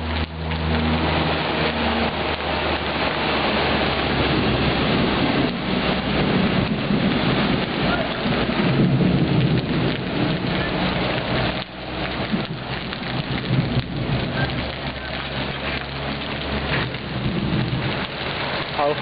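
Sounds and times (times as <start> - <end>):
rushing floodwater: 0.0 - 19.0
steady rain: 0.0 - 19.0
truck engine running: 0.0 - 19.0
water splashing: 0.0 - 19.0.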